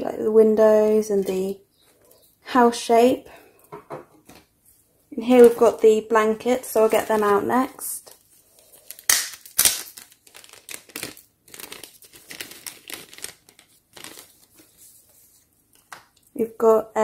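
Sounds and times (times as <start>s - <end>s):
plastic bag crinkling: 5.3s - 16.2s.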